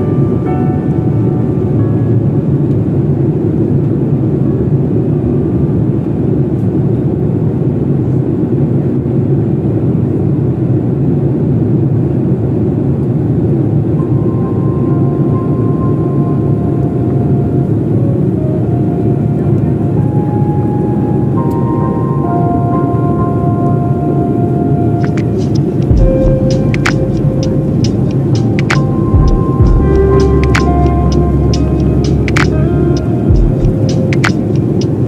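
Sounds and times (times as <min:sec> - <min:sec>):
airliner cabin rumble: 0:25.0 - 0:35.0.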